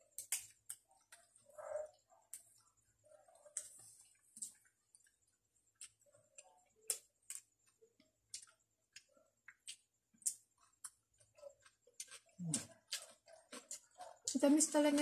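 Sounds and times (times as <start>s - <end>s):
people chewing with wet clicks: 0.0s - 15.0s.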